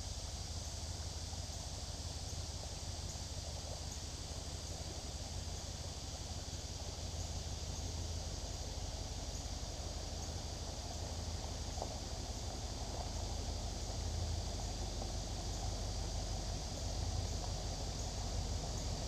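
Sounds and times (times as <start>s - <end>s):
insects droning: 0.0s - 19.0s
van engine rumble: 0.0s - 19.0s.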